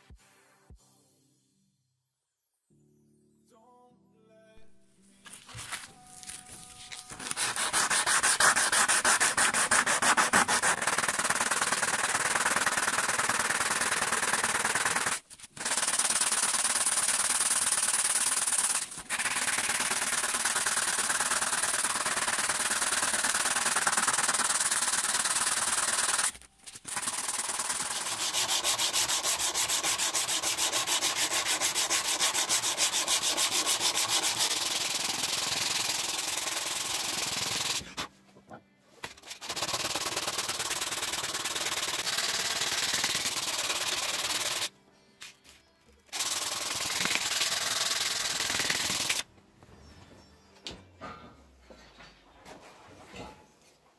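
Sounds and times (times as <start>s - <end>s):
sanding a steel knife blade: 7.2s - 19.6s, 26.9s - 37.9s, 39.2s - 44.7s.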